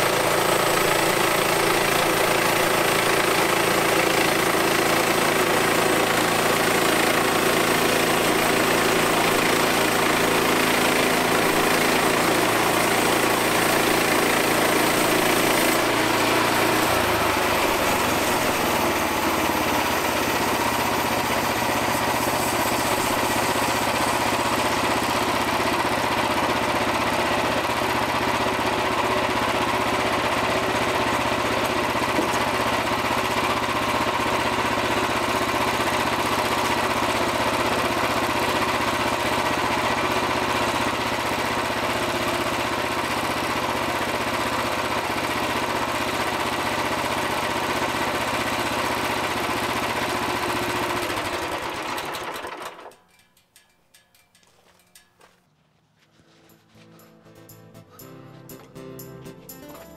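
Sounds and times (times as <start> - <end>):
bandsaw mill cutting log: 0.0 - 53.0.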